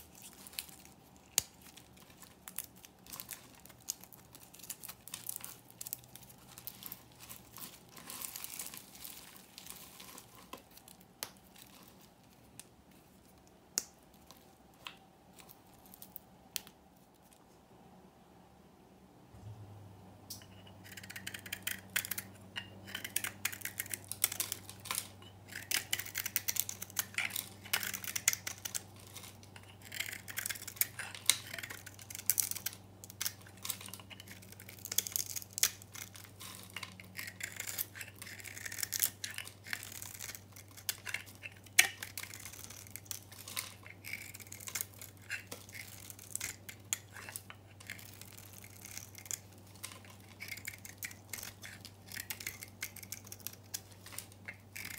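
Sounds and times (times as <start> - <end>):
knife blade scraping soap: 20.4 - 54.9.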